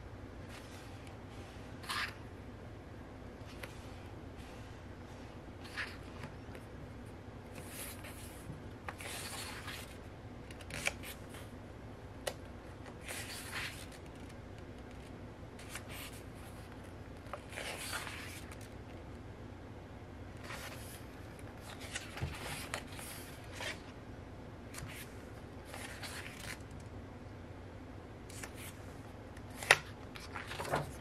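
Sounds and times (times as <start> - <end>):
book pages turning: 1.8 - 2.2, 5.6 - 6.7, 7.5 - 11.5, 12.2 - 18.8, 20.4 - 24.0, 24.7 - 26.8, 28.3 - 28.8, 29.4 - 31.0.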